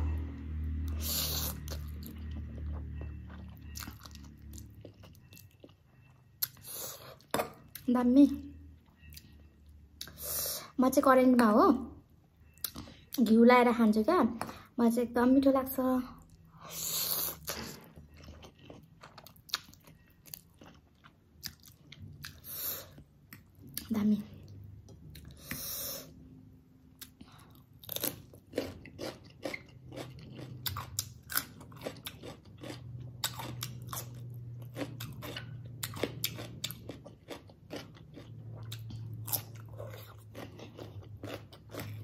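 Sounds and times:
slurping and chewing noodles: 0:00.9 - 0:07.3, 0:16.5 - 0:23.9, 0:27.0 - 0:42.0.

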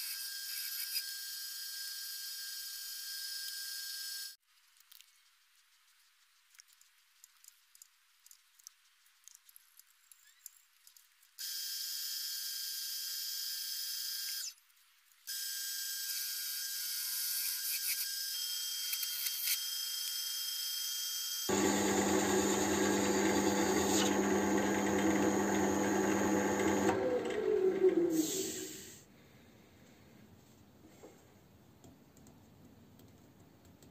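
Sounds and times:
wood lathe motor whine: 0:21.5 - 0:28.8.

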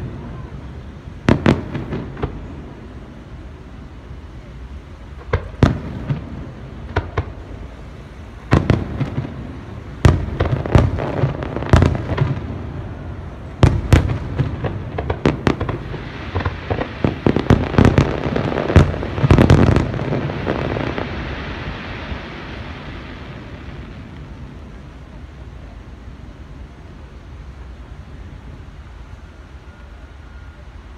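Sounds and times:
fireworks bangs: 0:00.0 - 0:03.2, 0:05.0 - 0:25.5
firework crackling: 0:00.0 - 0:30.5.

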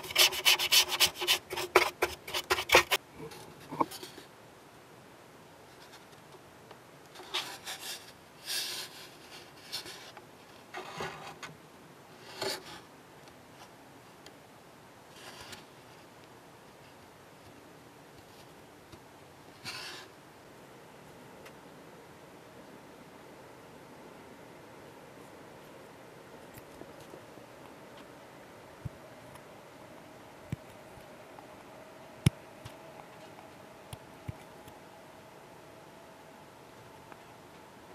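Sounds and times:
rubbing on plastic: 0:00.0 - 0:03.0.

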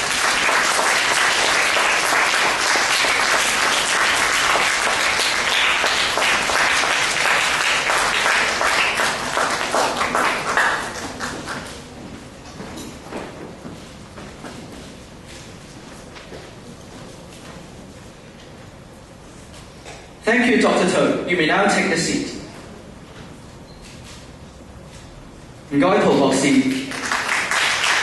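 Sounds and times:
audience applauding: 0:00.0 - 0:12.0, 0:26.5 - 0:28.0.

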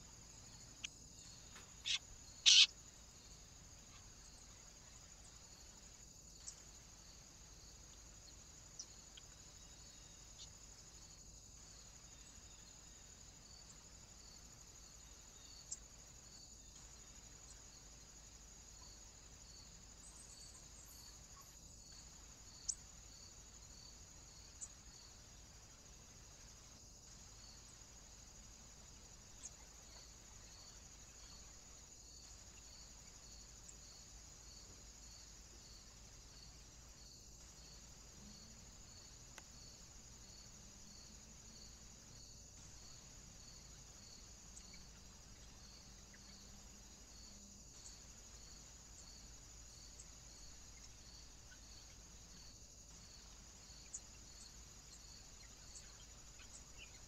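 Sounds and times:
insects chirring: 0:00.0 - 0:57.0
faint clicks: 0:39.3 - 0:39.5.

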